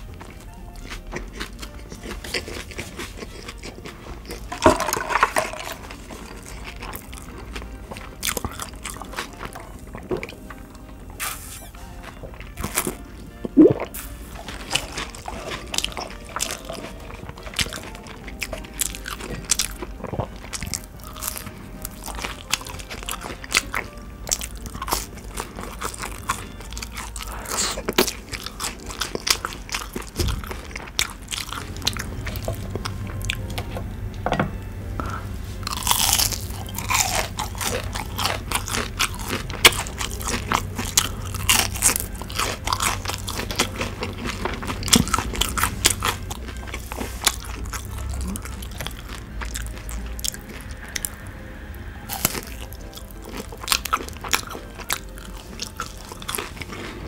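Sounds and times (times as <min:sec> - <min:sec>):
crunchy chewing: 0:00.0 - 0:33.8, 0:35.0 - 0:57.0
wet mouth sounds: 0:11.1 - 0:11.8, 0:12.5 - 0:21.2.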